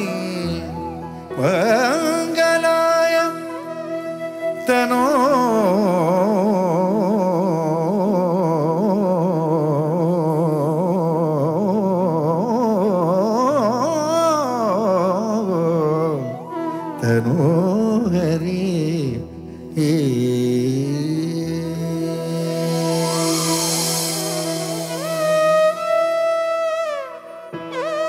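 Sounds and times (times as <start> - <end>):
person singing ornamented notes: 0.0 - 27.8
steady low drone: 20.6 - 26.3.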